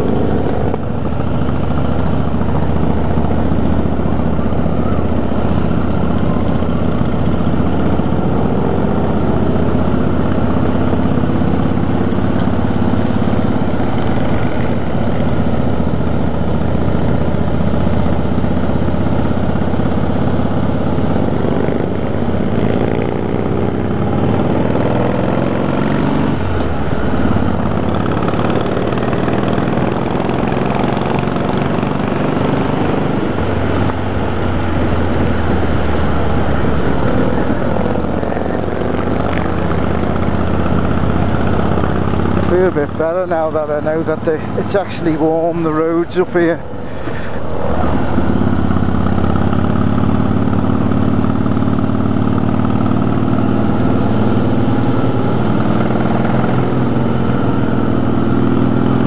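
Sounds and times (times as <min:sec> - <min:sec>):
motorcycle engine running: 0:00.0 - 0:59.0.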